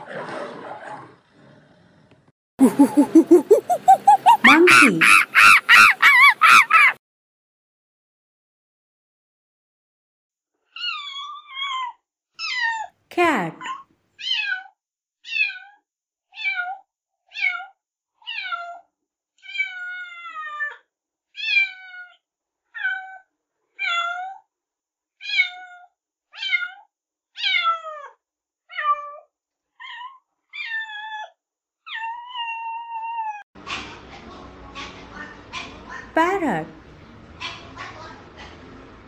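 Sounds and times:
cat meowing: 14.2 - 14.7, 15.3 - 15.8, 16.4 - 18.8, 19.4 - 20.8, 21.4 - 22.2, 25.2 - 26.8, 27.4 - 29.2, 29.8 - 31.3, 31.9 - 33.4.

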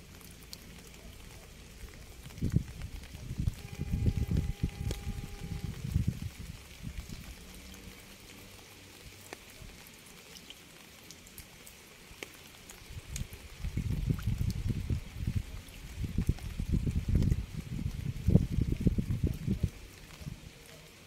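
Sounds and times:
low uneven rumble: 0.0 - 9.8
rain falling: 0.0 - 21.0
raindrops ticking: 0.0 - 21.0.

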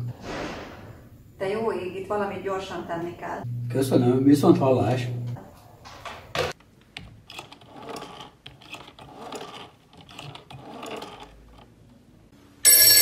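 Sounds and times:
rotary telephone dial whirring: 7.0 - 11.8.

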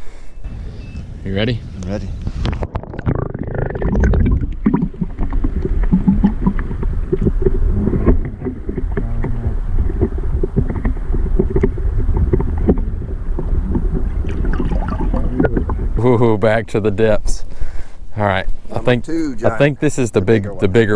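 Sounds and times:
muffled underwater churn: 2.4 - 16.1
small underwater ticks and knocks: 3.8 - 16.0.

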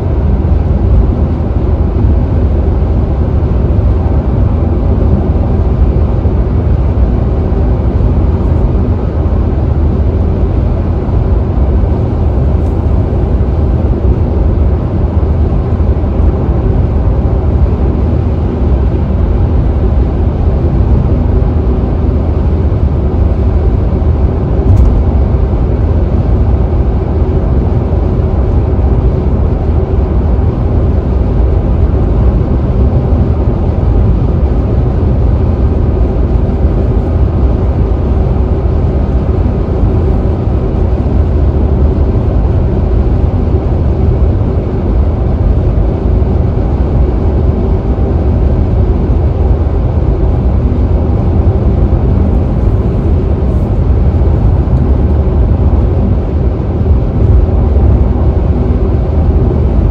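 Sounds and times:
car tyre and road rumble: 15.4 - 59.9.

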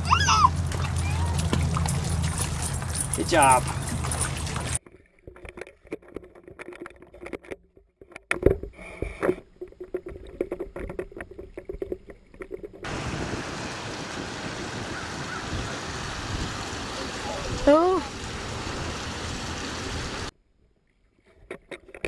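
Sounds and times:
muffled underwater knocks and clicks: 5.3 - 12.9
steady hiss above water: 12.9 - 20.3.

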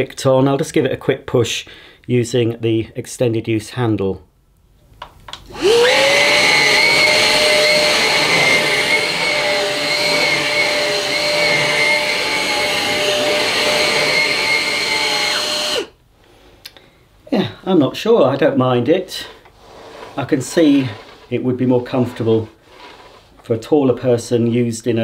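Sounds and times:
vacuum cleaner motor whining: 5.5 - 15.9.

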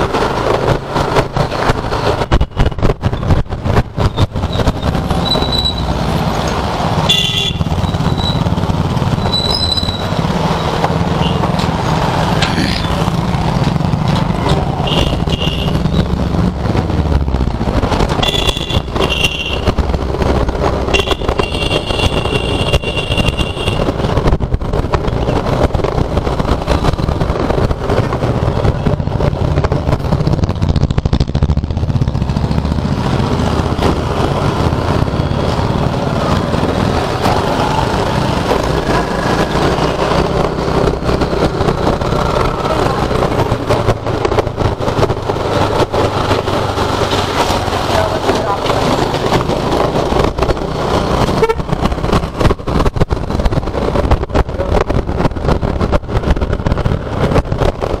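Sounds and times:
scooter engine and road rumble: 0.0 - 58.0
vehicle horns tooting: 7.0 - 8.4, 14.8 - 16.0, 18.2 - 19.7, 20.9 - 23.9, 51.3 - 51.7
wind on microphone: 48.0 - 58.0.

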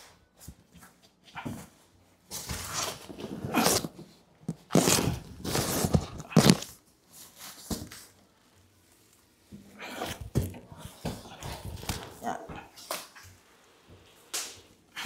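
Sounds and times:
cardboard box scraping and rustling: 2.4 - 4.0, 4.6 - 6.7
plastic and bubble wrap crinkling: 2.4 - 9.4.

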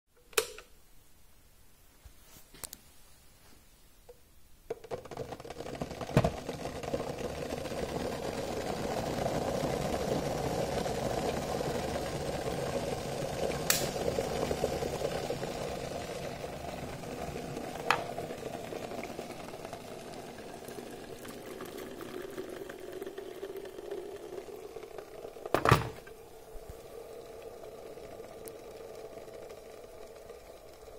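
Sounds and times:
kettle switch click: 0.3 - 0.7
kettle boiling hiss: 4.0 - 30.9.

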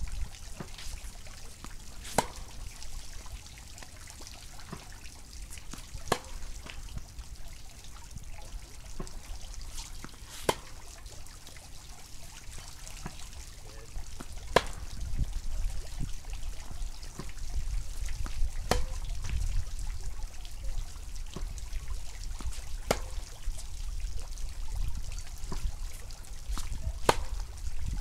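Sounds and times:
tennis racket striking ball: 0.6 - 2.6, 5.6 - 6.8, 9.0 - 10.8, 14.2 - 14.9, 18.6 - 19.0, 22.4 - 23.3, 26.5 - 27.4.

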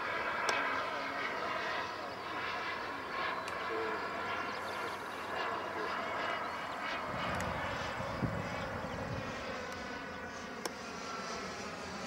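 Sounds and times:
model jet turbine whine: 0.0 - 12.0.

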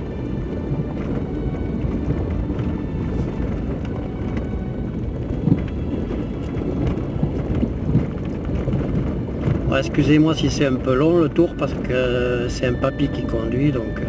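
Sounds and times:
vehicle driving on dirt track: 0.0 - 14.0
vehicle knocks and jolts: 5.2 - 11.0.

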